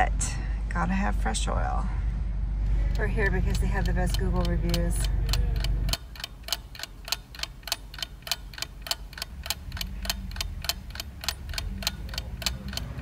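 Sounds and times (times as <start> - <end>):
low steady hum: 0.0 - 13.0
rapid even ticking: 2.8 - 13.0.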